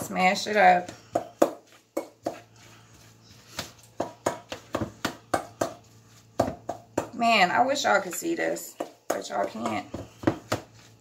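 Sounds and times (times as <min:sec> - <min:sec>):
utensil knocking against bowl: 0:08.7 - 0:10.7.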